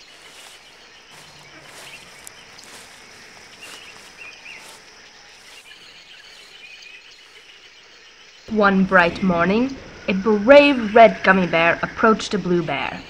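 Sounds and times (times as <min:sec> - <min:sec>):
faint bird chirps: 0:00.0 - 0:08.5.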